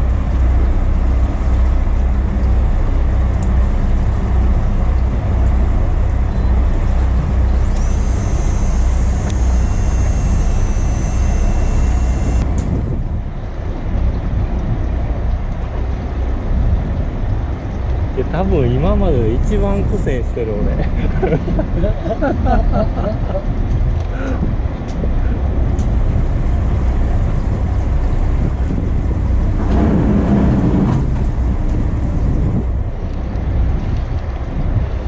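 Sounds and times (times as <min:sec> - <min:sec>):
high steady whine: 0:00.0 - 0:13.6
boat engine drone: 0:00.0 - 0:35.0.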